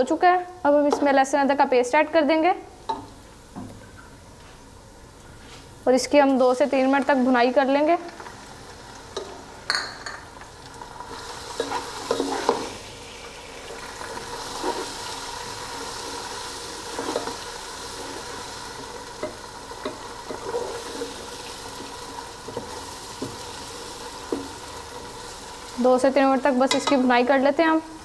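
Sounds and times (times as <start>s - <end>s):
onions sizzling in hot oil: 5.8s - 28.0s
spatula scraping a pot: 11.5s - 12.7s.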